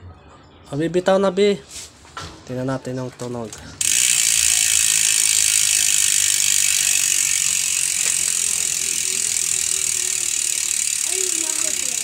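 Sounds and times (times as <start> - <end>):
bicycle hub ratcheting buzz: 3.8 - 12.0.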